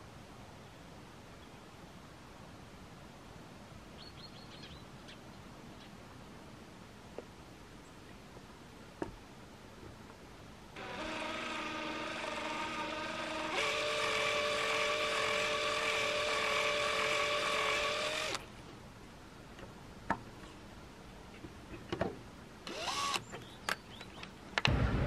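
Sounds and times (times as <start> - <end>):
electric drill motor whine: 10.8 - 18.4, 22.7 - 23.2.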